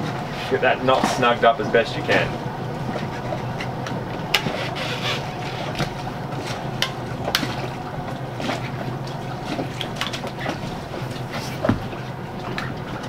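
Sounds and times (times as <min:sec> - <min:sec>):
constant low hum: 0:00.0 - 0:13.0
wind and water: 0:00.0 - 0:13.0.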